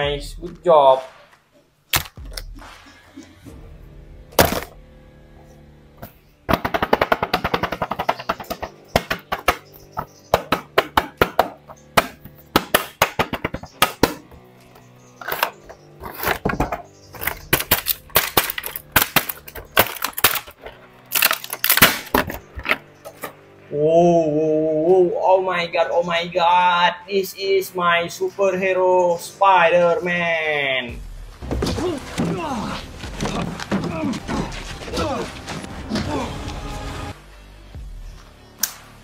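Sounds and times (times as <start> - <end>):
faint background music: 0.0 - 39.0
plastic packaging crackling: 17.7 - 22.2.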